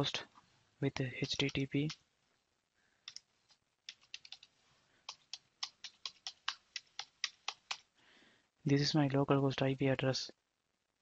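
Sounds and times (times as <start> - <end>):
keyboard typing clicks: 1.2 - 2.0, 3.1 - 7.9.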